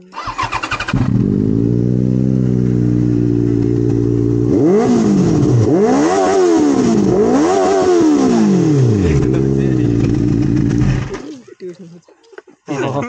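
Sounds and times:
motorcycle engine starting: 0.0 - 11.3
motorcycle engine idling: 0.2 - 5.6, 8.8 - 11.2
motorcycle throttle blips: 0.2 - 11.2.

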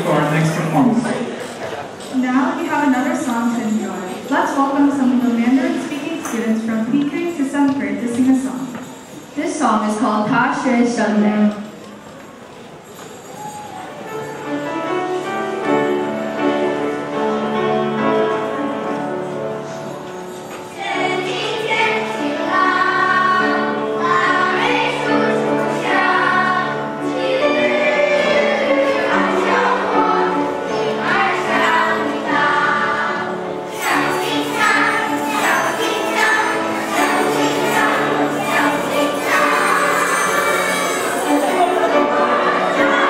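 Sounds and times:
instrumental accompaniment: 11.3 - 43.0
children's choir singing: 20.7 - 43.0.

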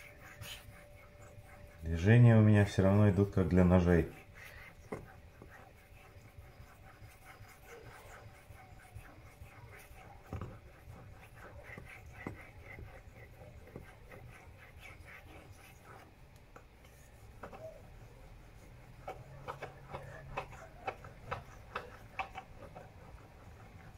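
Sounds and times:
razor scraping on whetstone: 3.7 - 16.1, 17.5 - 23.9.

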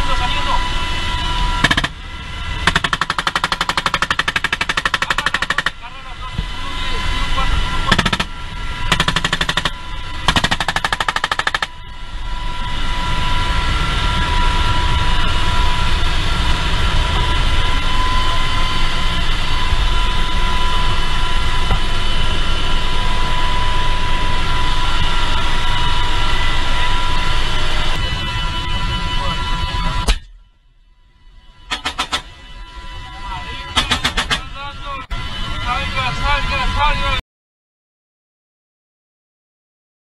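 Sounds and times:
helicopter turbine and rotor noise: 0.0 - 37.2
machine-gun fire: 2.7 - 5.7, 8.9 - 9.7, 10.3 - 11.7.

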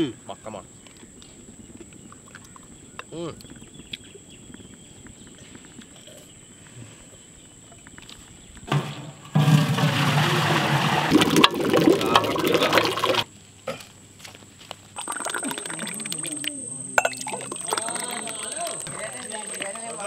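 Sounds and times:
juice pouring: 9.4 - 13.3, 15.0 - 20.0.

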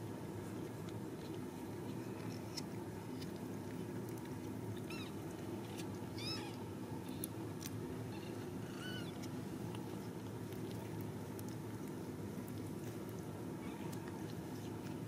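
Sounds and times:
kittens mewing: 6.2 - 7.3, 8.0 - 9.3.

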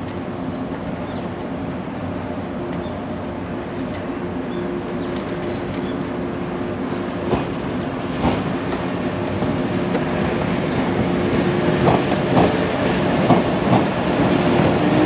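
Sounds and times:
electric train hum and rumble: 0.0 - 15.0
train wheels clacking: 6.9 - 15.0.

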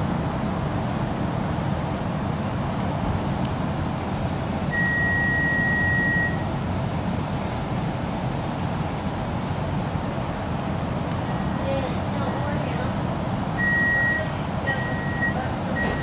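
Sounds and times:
train equipment low rumble: 0.0 - 16.0
high electronic beep: 4.8 - 6.5, 13.6 - 16.0.

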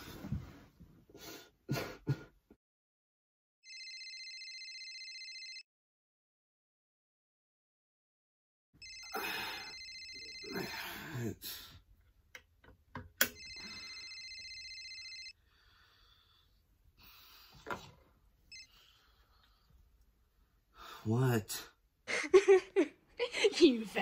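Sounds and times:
phone ringtone: 3.6 - 5.6, 8.8 - 10.8, 13.3 - 15.4, 18.5 - 18.8
person groaning: 10.4 - 11.7.

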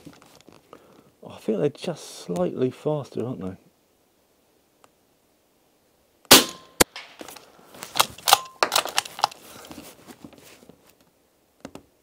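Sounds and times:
bullet striking crack: 6.3 - 7.2
suppressed rifle shot: 6.3 - 7.2.

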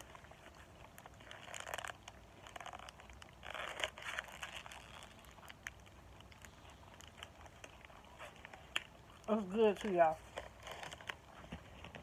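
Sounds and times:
paper wrapper crinkling: 0.0 - 12.0
person chewing food: 0.0 - 12.0.

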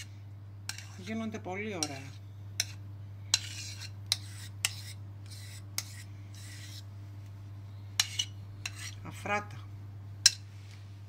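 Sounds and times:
spatula scraping bowl: 0.7 - 6.9, 8.0 - 9.2.

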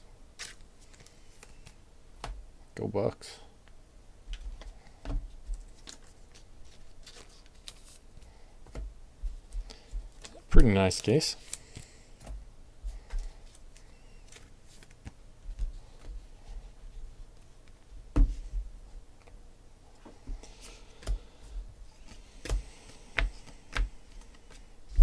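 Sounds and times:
soft rustle of cards: 0.4 - 1.8, 4.3 - 18.6, 19.2 - 25.0.

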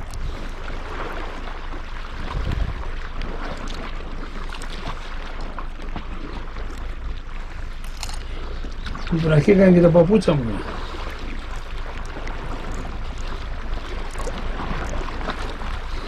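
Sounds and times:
sea water washing ashore: 0.0 - 16.0
wind rumbling on microphone: 0.0 - 16.0
small clicks: 7.8 - 8.8.

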